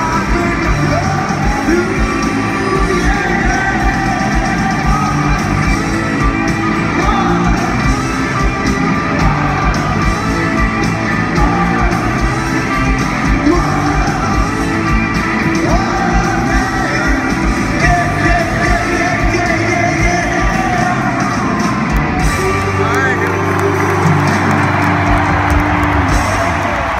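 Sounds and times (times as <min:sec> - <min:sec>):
loud sung vocals: 0:00.0 - 0:10.6, 0:11.2 - 0:21.6
drums with steady beat: 0:00.0 - 0:26.9
electric guitars: 0:00.0 - 0:26.9
keyboards: 0:00.0 - 0:26.9.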